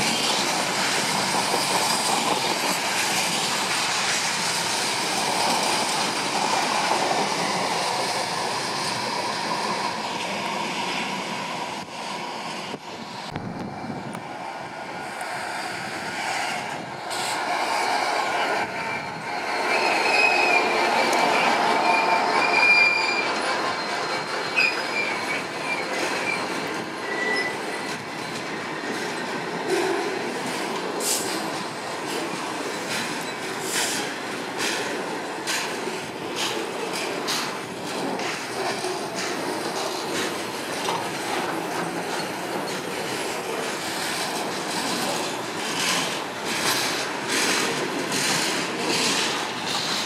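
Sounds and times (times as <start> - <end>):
diesel locomotive passing: 0.0 - 50.0
high wheel squeal: 16.5 - 29.5
wheels clicking over rail joints: 19.2 - 50.0.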